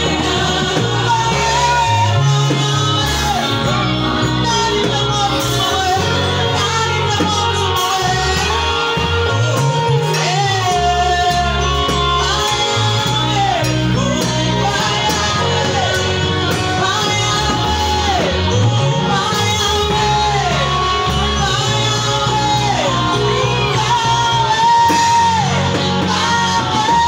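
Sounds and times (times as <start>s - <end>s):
girls choir singing: 0.0s - 10.9s
band with bass line: 0.0s - 27.0s
woman singing lead: 0.0s - 27.0s.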